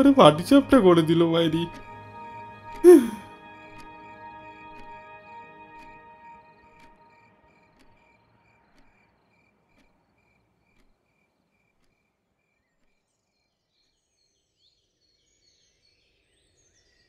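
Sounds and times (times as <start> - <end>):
light ticking: 0.0 - 2.8, 6.7 - 11.1.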